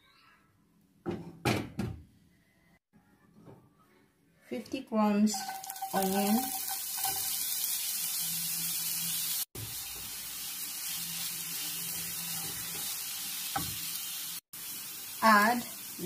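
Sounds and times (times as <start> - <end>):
onion sizzling in a frying pan: 5.3 - 16.0.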